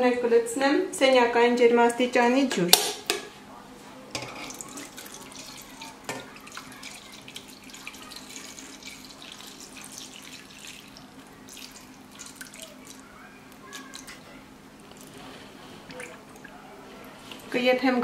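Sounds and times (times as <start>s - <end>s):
water pouring and splashing: 4.4s - 13.0s, 14.9s - 16.6s.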